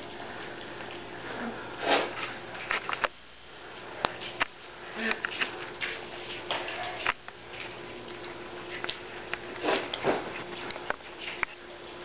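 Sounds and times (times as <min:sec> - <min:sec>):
puppies licking: 0:00.0 - 0:12.0
puppies sniffing: 0:05.0 - 0:12.0
paws crinkling paper: 0:05.1 - 0:12.0.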